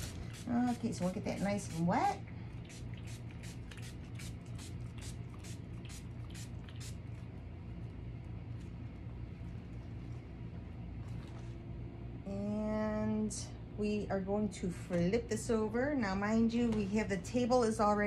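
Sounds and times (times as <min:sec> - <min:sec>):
spray bottle squirting water: 0:00.0 - 0:07.1
low steady hum: 0:00.0 - 0:18.0.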